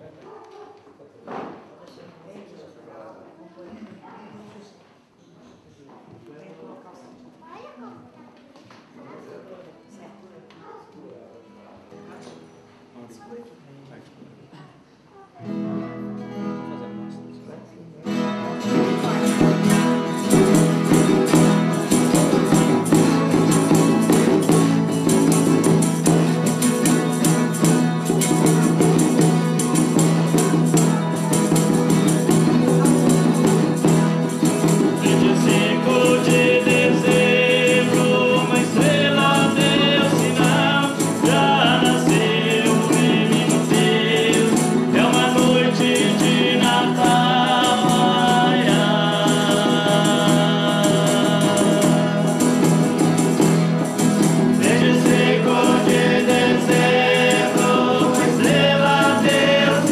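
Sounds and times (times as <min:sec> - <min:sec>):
strummed acoustic guitars: 0:15.4 - 0:59.9
percussion: 0:18.2 - 0:59.9
voices singing a folk hymn: 0:18.7 - 0:59.9.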